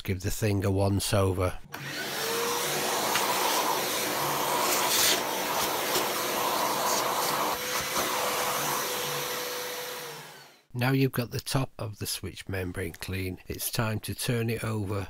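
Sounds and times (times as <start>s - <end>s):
vacuum cleaner running: 1.7s - 10.7s.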